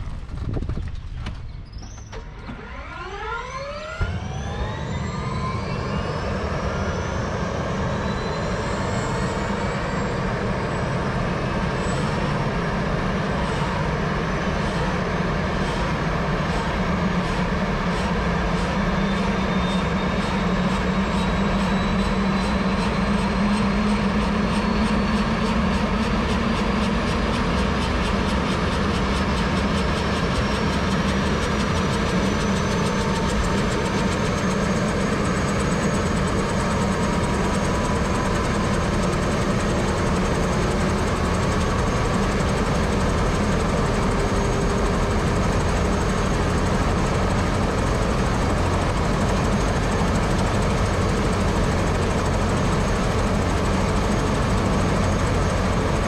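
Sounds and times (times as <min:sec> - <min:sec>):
helicopter engine and rotor: 0:00.0 - 0:56.0
high turbine whine: 0:00.0 - 0:56.0.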